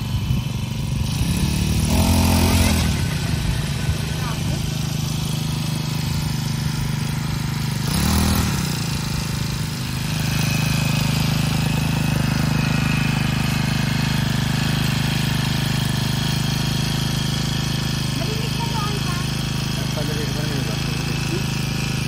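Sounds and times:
brush cutter engine idling: 0.0s - 22.0s
engine revving: 0.0s - 22.0s.

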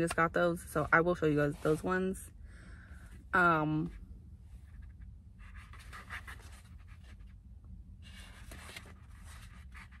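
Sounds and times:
book pages flipping: 8.0s - 10.0s.

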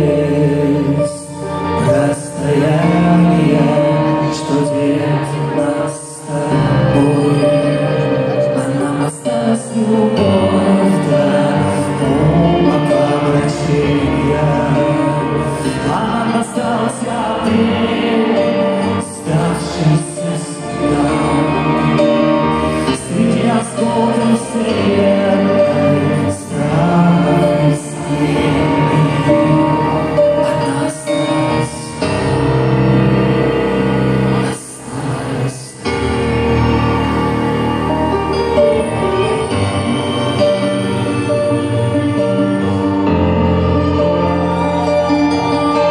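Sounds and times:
person singing: 0.0s - 45.9s
string section playing: 0.0s - 45.9s.

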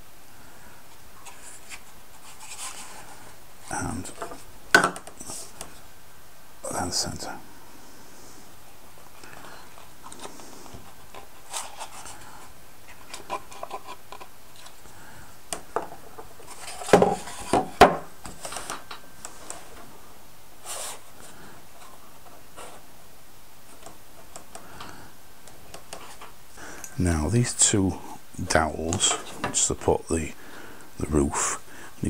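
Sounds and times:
wooden parts knocking and scraping: 4.0s - 5.7s, 15.6s - 19.8s
wooden parts clicking and tapping: 4.1s - 5.7s.

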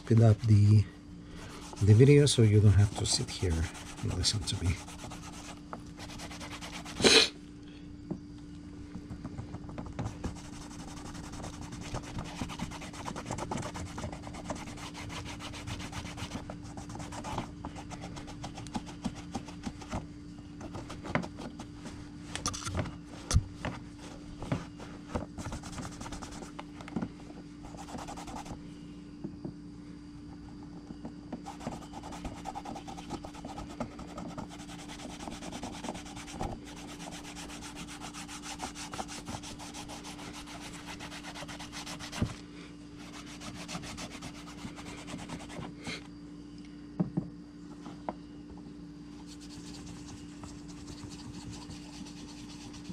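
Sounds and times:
cloth rubbing on leather: 1.4s - 7.2s, 10.1s - 20.0s, 23.1s - 26.5s, 49.2s - 52.9s.

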